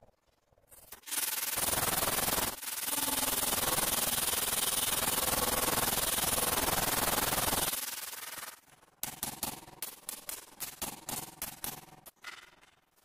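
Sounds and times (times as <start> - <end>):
angle grinder cutting tile: 1.1 - 7.8.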